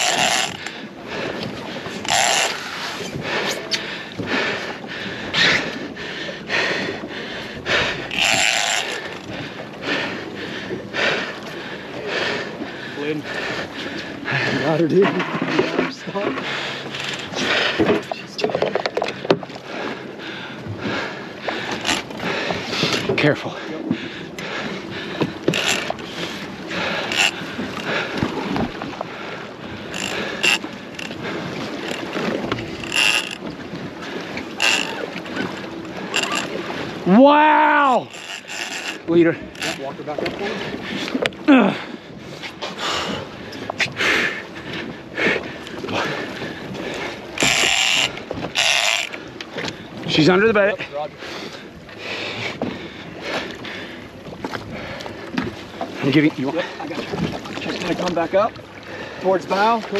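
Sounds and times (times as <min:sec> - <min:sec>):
fishing reel cranking: 0:00.0 - 0:00.7, 0:01.9 - 0:03.1, 0:08.1 - 0:09.3, 0:25.5 - 0:26.0, 0:26.9 - 0:27.5, 0:29.9 - 0:31.2, 0:31.8 - 0:33.5, 0:34.6 - 0:35.1, 0:36.0 - 0:36.6, 0:37.8 - 0:39.9, 0:47.4 - 0:49.2
water noise: 0:00.0 - 0:59.9
wind: 0:00.0 - 0:59.9.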